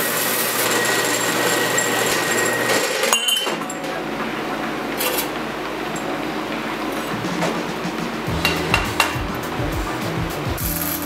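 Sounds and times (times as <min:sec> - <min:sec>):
bandsaw cutting metal pipe: 0:00.0 - 0:03.6.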